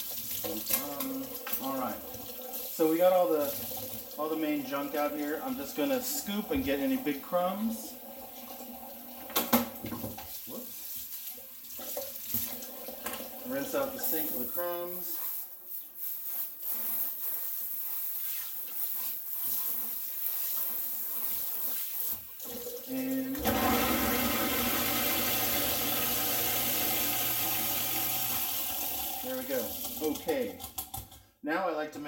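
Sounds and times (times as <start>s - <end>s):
garbage disposal humming: 0.0s - 10.3s, 22.2s - 31.3s
faucet water running into sink: 0.0s - 31.3s.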